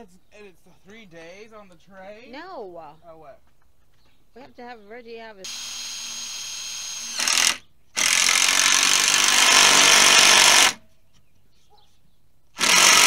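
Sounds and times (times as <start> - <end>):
loud electric motor: 5.5 - 10.8, 12.6 - 13.0.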